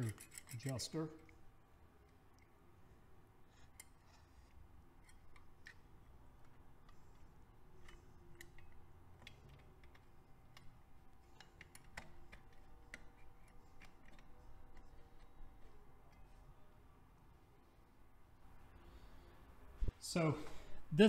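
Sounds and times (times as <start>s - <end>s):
small metallic clicks and ticks: 0.0s - 1.4s, 3.5s - 15.4s.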